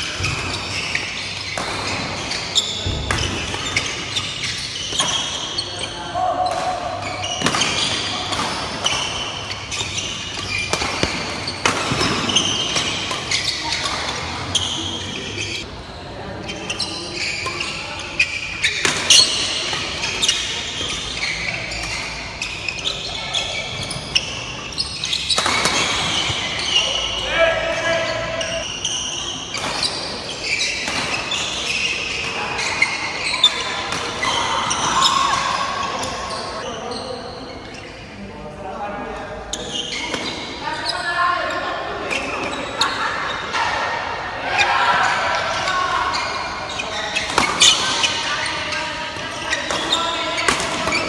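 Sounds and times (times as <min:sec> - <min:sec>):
shoes squeaking on court floor: 0:00.0 - 0:38.2, 0:39.2 - 0:43.8, 0:44.6 - 0:51.0
rackets hitting shuttlecock: 0:00.1 - 0:14.3, 0:25.0 - 0:26.8, 0:33.5 - 0:36.2, 0:47.2 - 0:48.2.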